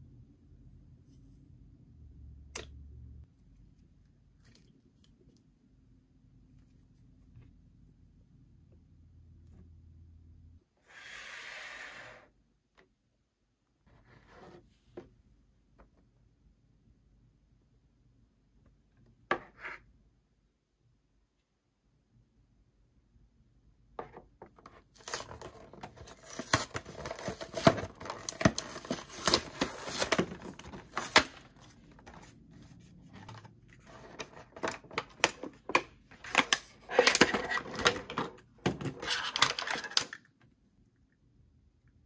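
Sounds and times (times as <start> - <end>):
packaging crinkling and tearing: 24.9 - 31.5.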